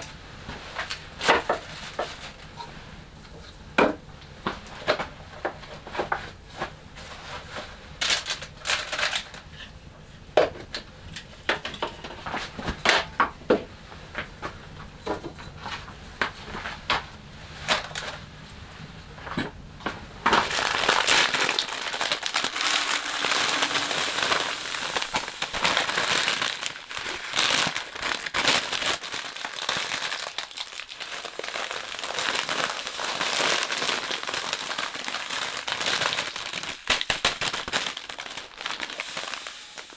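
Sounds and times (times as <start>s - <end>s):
plastic bag crinkling: 20.3s - 39.9s
grain pouring into plastic bucket: 20.4s - 36.8s, 37.6s - 39.9s.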